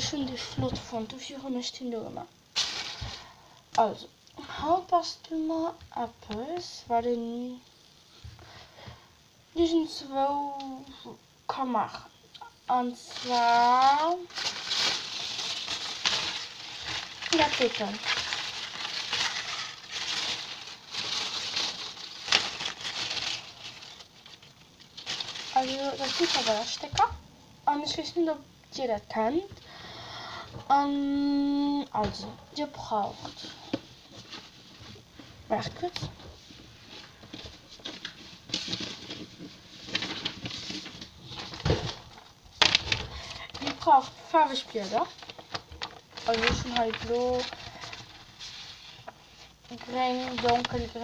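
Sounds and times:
rustling handling noise: 2.5s - 3.4s, 12.7s - 27.2s, 32.0s - 51.0s.

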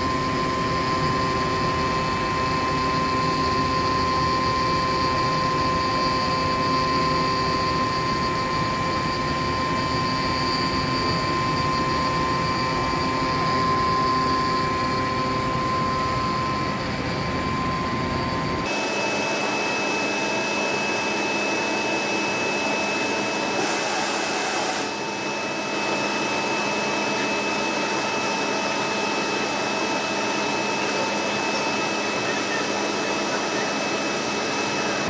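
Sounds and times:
thin high whine: 0.0s - 35.0s
hiss: 23.5s - 24.9s.

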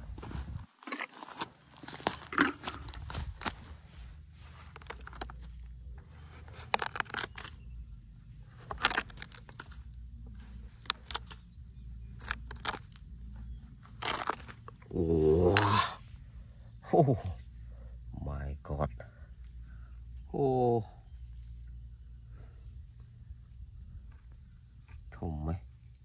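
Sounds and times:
tweezers scraping rotten wood: 0.8s - 15.8s.

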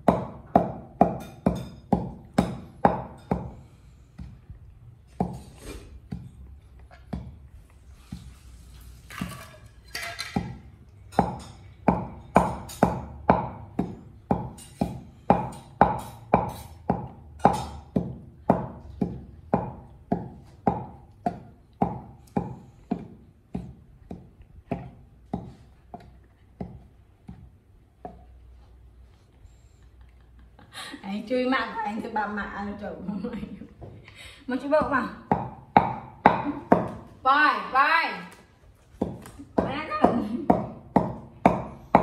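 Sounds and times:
pestle pounding in wooden mortar: 0.0s - 8.3s, 10.2s - 28.4s, 34.6s - 37.1s, 39.0s - 42.0s.

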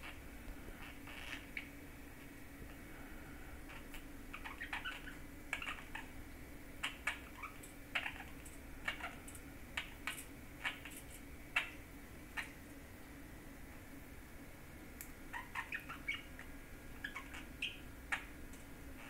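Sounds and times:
budgerigar chirping and clicking: 3.7s - 6.1s, 6.8s - 11.8s, 15.3s - 18.3s.

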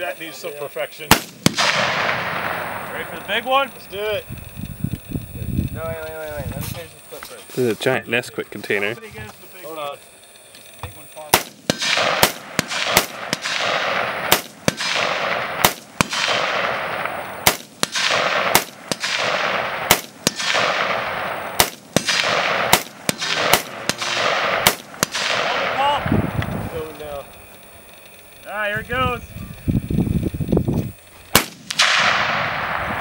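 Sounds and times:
rapid gunshots with echo: 1.1s - 4.2s, 11.2s - 27.2s, 31.3s - 33.0s.

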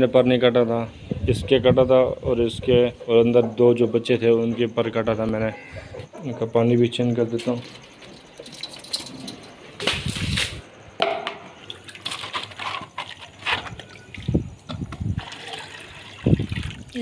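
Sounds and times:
water splashing in a plastic bowl: 15.2s - 17.0s.

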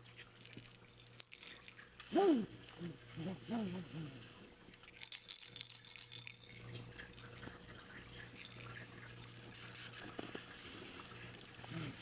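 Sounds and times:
metallic jingling: 0.6s - 1.9s, 4.9s - 7.4s, 8.3s - 9.6s.

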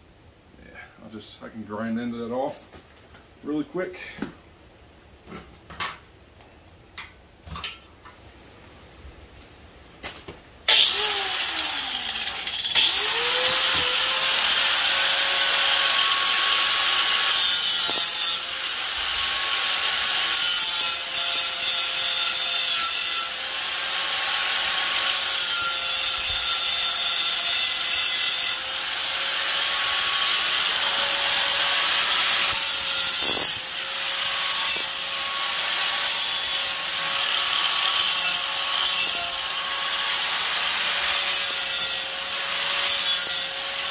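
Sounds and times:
power grinder whining: 10.7s - 43.9s.

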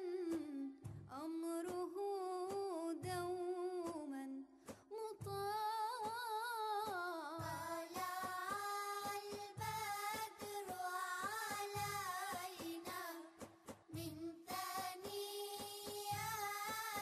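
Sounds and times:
low drum beat: 0.3s - 1.2s, 7.4s - 17.0s.

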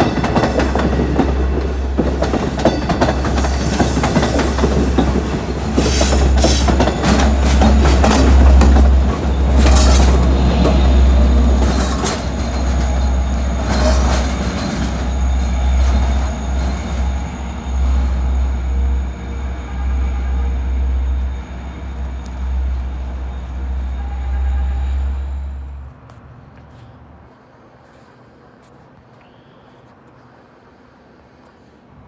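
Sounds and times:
train wheels clattering: 0.0s - 18.4s
low train rumble: 0.0s - 32.0s
faint high whine: 12.8s - 26.0s.

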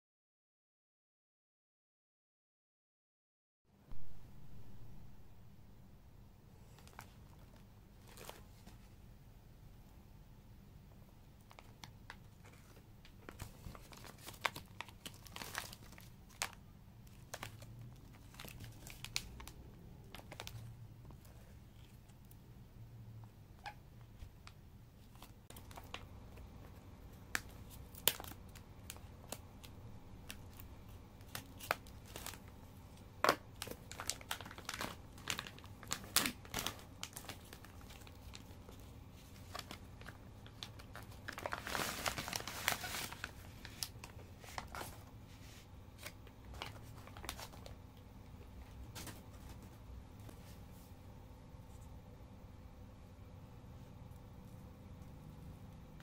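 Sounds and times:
plastic wrap crinkling and tearing: 6.7s - 8.7s, 11.5s - 22.0s, 25.1s - 26.5s, 27.1s - 32.6s, 33.2s - 45.1s, 46.0s - 47.8s.

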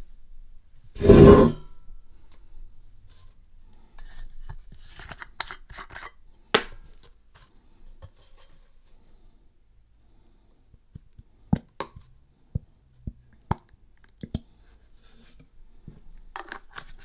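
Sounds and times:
clicks and scrapes of handling: 4.0s - 6.2s, 15.0s - 17.0s.

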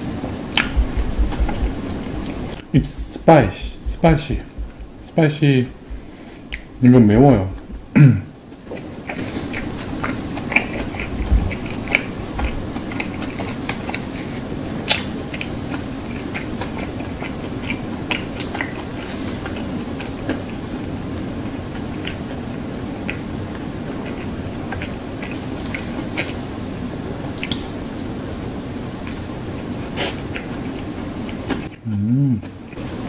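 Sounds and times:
steady low hum: 0.0s - 33.0s
mouth chewing wet clicks: 0.5s - 2.6s, 5.7s - 6.8s, 8.8s - 22.4s, 23.0s - 26.4s, 27.3s - 28.1s.

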